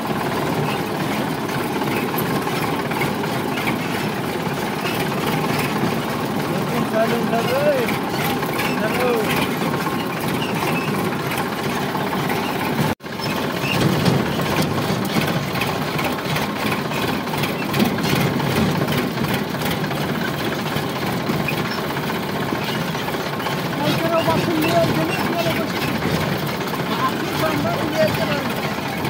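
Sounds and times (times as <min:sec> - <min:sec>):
tractor diesel engine running: 0:00.0 - 0:29.0.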